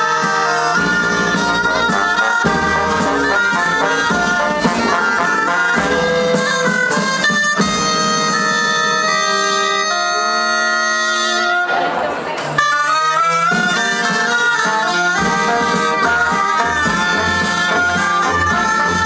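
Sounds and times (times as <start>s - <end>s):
dance music on wind instruments: 0.0s - 19.0s
steady low beat: 0.8s - 6.6s.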